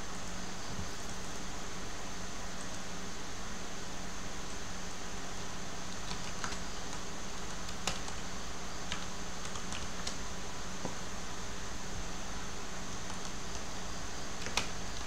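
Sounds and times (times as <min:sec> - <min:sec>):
background hiss and hum: 0:00.0 - 0:15.0
computer keyboard keystrokes: 0:06.0 - 0:10.2, 0:13.0 - 0:13.6, 0:14.4 - 0:15.0.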